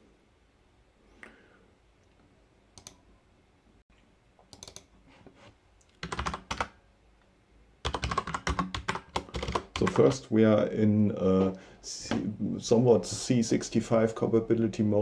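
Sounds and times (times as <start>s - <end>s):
computer keyboard typing: 2.8s - 3.0s, 4.5s - 4.9s, 5.9s - 6.8s, 7.8s - 10.2s.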